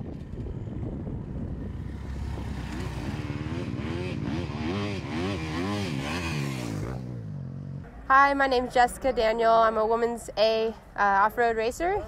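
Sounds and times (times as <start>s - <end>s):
dirt bike engine revving: 1.8s - 7.8s.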